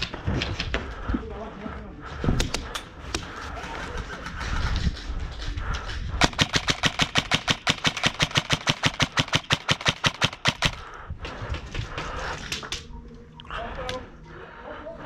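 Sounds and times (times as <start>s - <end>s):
airsoft gun full-auto burst: 6.2s - 10.8s.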